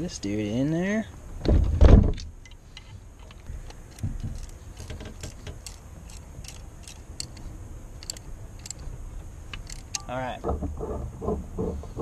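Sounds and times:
light metallic clicks and clinks: 2.4 - 8.8, 9.5 - 10.1.

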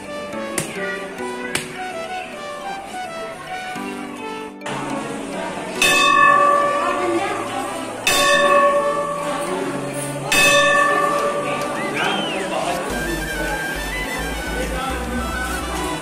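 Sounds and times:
temple bell ringing: 5.8 - 12.2.

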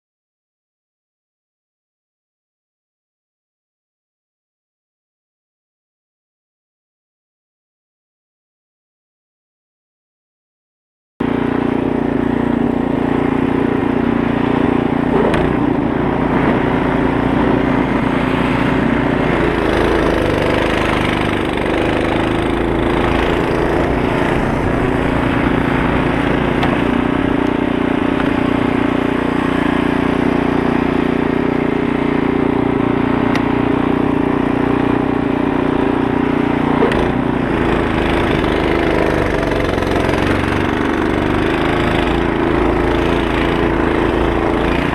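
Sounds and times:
snow blower engine running: 11.2 - 44.9.

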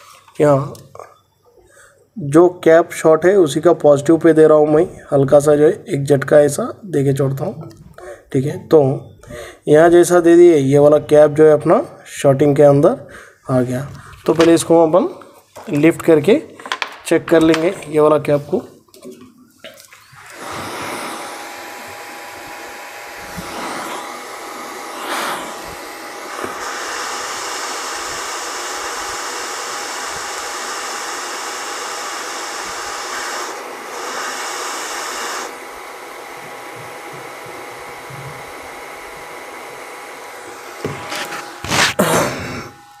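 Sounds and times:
hot air station blowing: 20.2 - 43.0.

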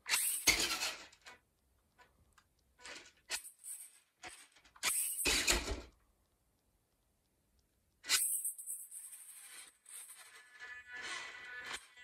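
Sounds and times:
toy truck motor whirring: 0.0 - 1.4, 8.0 - 12.0.

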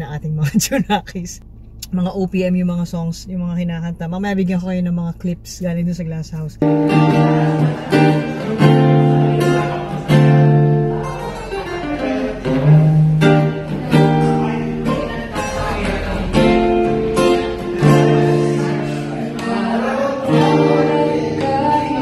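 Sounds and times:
acoustic guitar strummed: 6.6 - 22.0.

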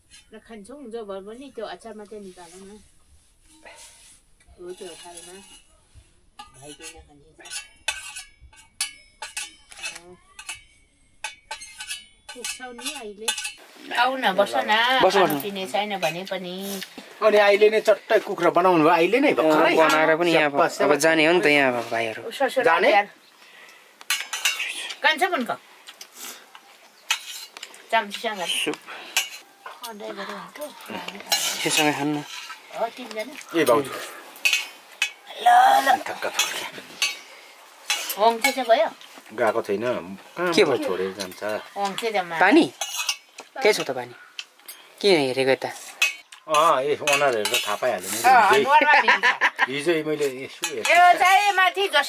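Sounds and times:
spoon clinking on metal plates: 6.4 - 13.6, 19.5 - 20.4, 24.1 - 25.0, 27.1 - 30.0, 31.1 - 32.7, 34.4 - 35.2, 36.1 - 38.7, 40.6 - 44.8, 45.7 - 48.7, 50.2 - 51.2
voices: 12.3 - 52.0
soft voices: 27.8 - 38.2.

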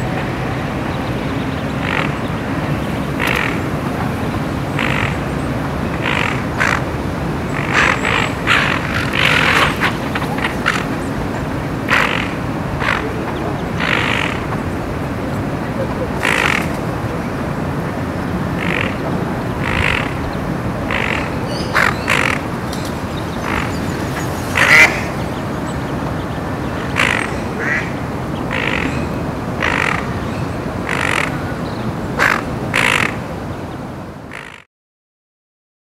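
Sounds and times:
steady background noise: 0.0 - 34.6
duck quacking: 1.8 - 2.4, 3.2 - 5.2, 5.9 - 6.9, 7.5 - 14.8, 15.5 - 17.1, 18.6 - 22.5, 23.4 - 23.9, 24.5 - 25.6, 26.8 - 29.0, 29.6 - 30.2, 30.8 - 31.4, 32.2 - 33.2, 34.3 - 34.6.

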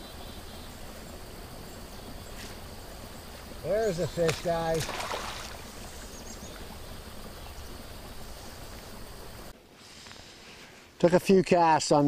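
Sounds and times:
flowing river water: 3.2 - 6.8.

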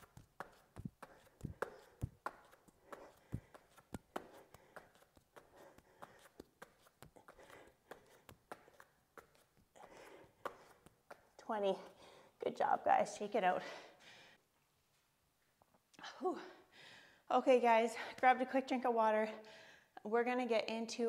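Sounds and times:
hands tapping on yoga mat: 0.0 - 11.4.

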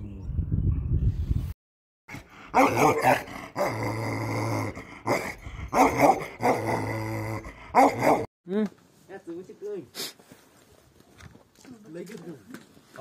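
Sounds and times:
dog barking: 2.5 - 3.3, 5.1 - 6.6, 7.8 - 8.3
dog growling: 2.6 - 8.3.

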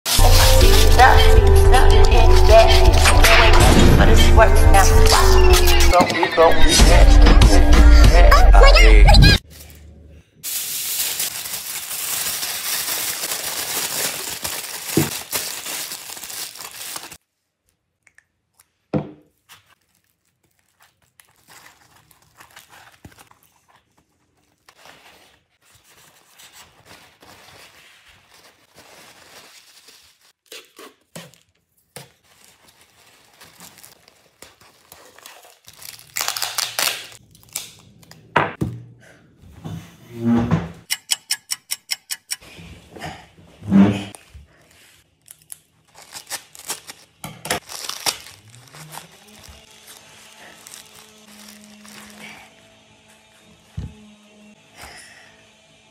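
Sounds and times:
aluminium foil crinkling: 0.1 - 3.2, 10.4 - 17.3, 19.4 - 31.5, 32.1 - 38.1, 44.2 - 52.4.

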